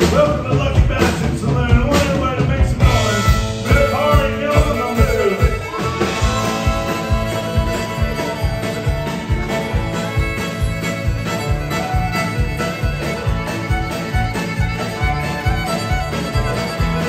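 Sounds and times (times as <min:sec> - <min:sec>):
drum kit beat: 0:00.0 - 0:17.0
electric and acoustic guitars: 0:00.0 - 0:17.0
fiddle: 0:02.8 - 0:17.0.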